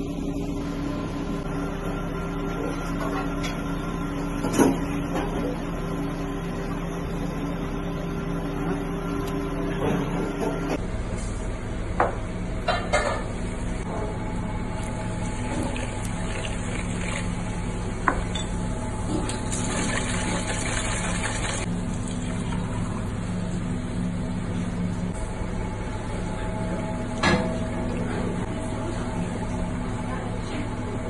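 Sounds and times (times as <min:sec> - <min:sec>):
scraping and sloshing water: 0:14.9 - 0:17.6, 0:19.2 - 0:22.4.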